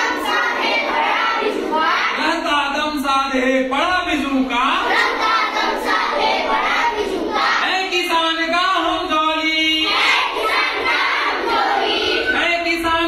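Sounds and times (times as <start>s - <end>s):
children singing: 0.0s - 2.3s, 4.7s - 7.9s, 9.6s - 13.0s.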